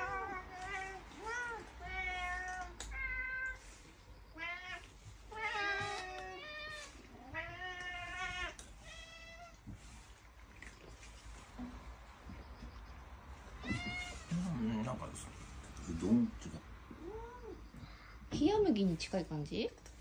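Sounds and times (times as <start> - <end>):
cats meowing: 0.0 - 10.2, 13.4 - 15.1, 15.9 - 18.0.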